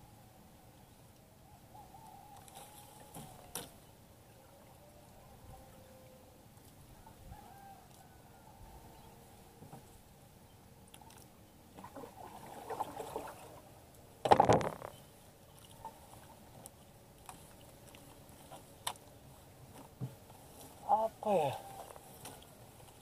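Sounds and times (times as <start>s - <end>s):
water lapping against boat hull: 10.9s - 20.4s.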